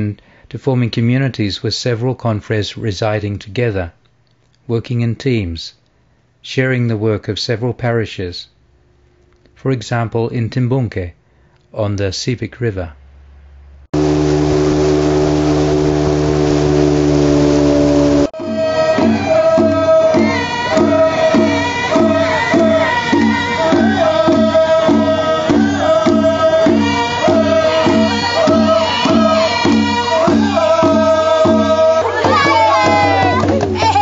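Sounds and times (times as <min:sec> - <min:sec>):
outboard motor running: 0:14.0 - 0:34.0
water rushing: 0:14.0 - 0:34.0
group singing: 0:18.3 - 0:34.0
steady drumbeat: 0:18.4 - 0:34.0.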